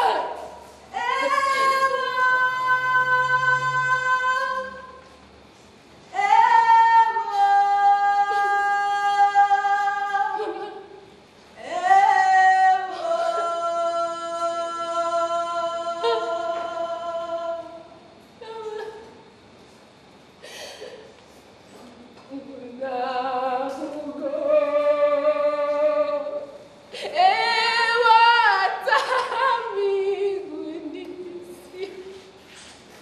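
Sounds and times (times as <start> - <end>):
woman singing long held notes: 0.0 - 5.1.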